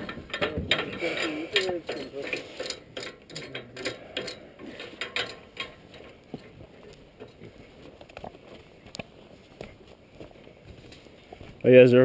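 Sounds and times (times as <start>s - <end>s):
light clicks and rattles: 0.0s - 9.1s.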